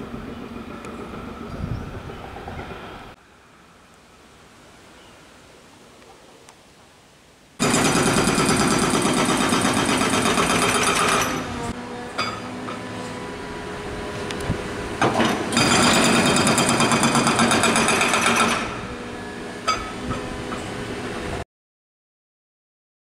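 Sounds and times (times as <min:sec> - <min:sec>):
jackhammer pounding pavement: 0:07.6 - 0:11.5, 0:15.0 - 0:18.9
machinery running: 0:07.6 - 0:21.4.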